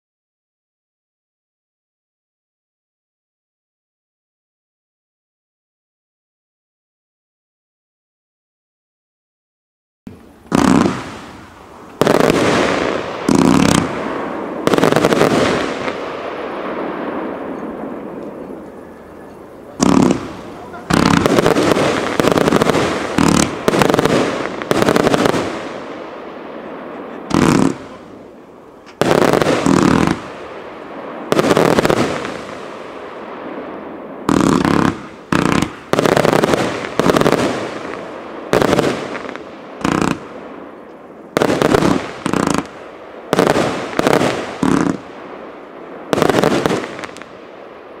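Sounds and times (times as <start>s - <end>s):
fireworks shots and aerial bursts: 10.1s - 48.0s
rumbling echo: 10.9s - 41.4s.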